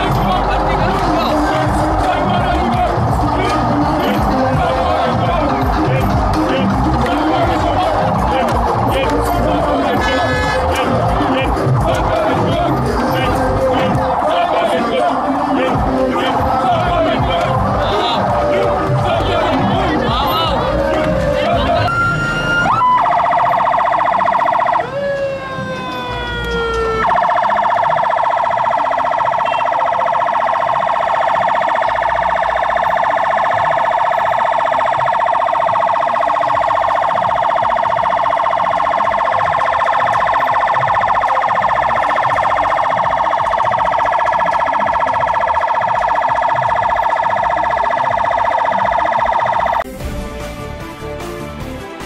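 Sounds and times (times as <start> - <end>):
electronic siren wailing: 0.0 - 49.9
music: 0.0 - 52.0.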